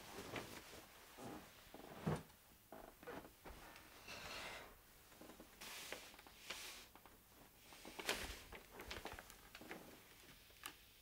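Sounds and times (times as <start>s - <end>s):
clothing rustling: 0.0s - 2.3s, 5.0s - 10.4s.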